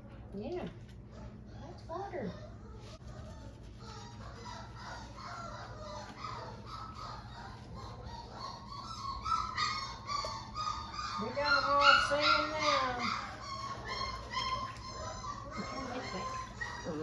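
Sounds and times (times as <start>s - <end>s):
puppy whining and squealing: 1.0s - 17.0s.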